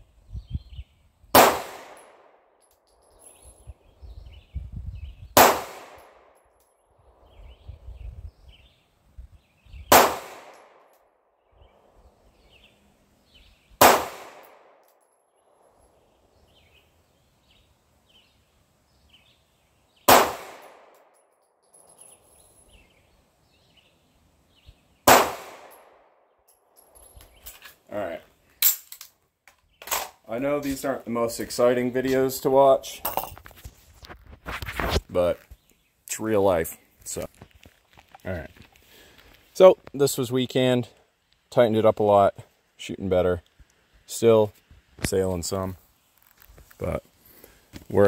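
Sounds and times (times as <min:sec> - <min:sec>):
pistol shots: 0:01.3 - 0:02.4, 0:05.4 - 0:06.3, 0:09.9 - 0:10.9, 0:13.8 - 0:14.8, 0:20.1 - 0:21.0, 0:25.0 - 0:26.0.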